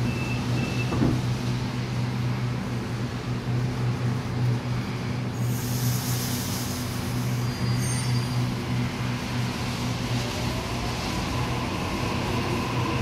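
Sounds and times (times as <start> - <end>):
electric train hum: 0.0 - 13.0
train high whines: 0.0 - 13.0
air hiss: 5.4 - 7.5.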